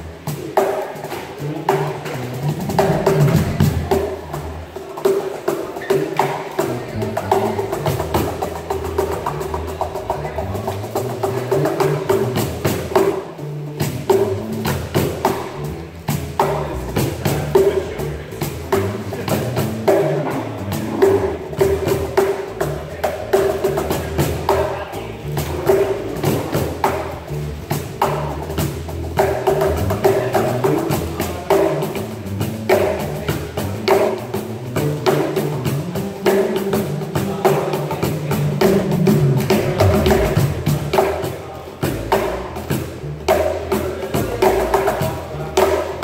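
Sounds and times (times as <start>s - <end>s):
cajons slapped by hand: 0.3s - 15.5s
electric bass line: 1.3s - 4.8s, 6.2s - 46.0s.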